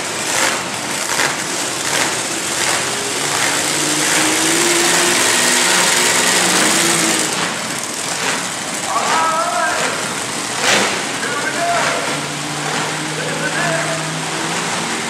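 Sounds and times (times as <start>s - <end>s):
monster truck engines revving: 0.0s - 15.0s.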